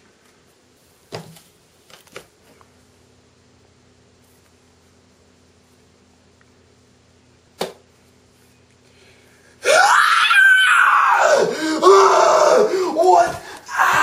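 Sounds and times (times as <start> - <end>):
young man screaming: 9.6 - 14.0.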